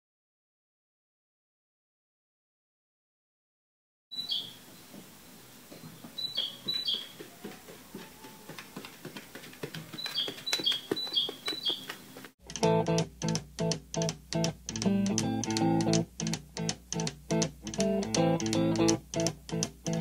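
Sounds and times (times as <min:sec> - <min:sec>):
puppy chirping: 0:06.2 - 0:08.5, 0:09.9 - 0:12.2
puppy claws clicking on tiles: 0:08.5 - 0:20.0
guitar music: 0:12.4 - 0:20.0.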